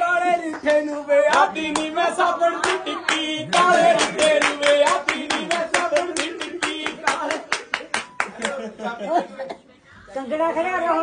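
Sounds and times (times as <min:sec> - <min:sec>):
folk songs sung by voices: 0:00.0 - 0:07.6
steady hand-clapping: 0:00.4 - 0:08.8.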